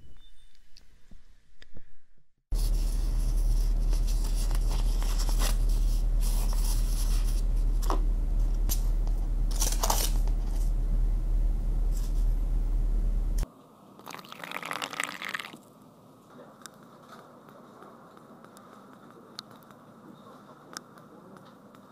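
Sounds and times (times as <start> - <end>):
low hum: 0.0 - 13.4
paper coffee filter crinkling: 2.5 - 7.9.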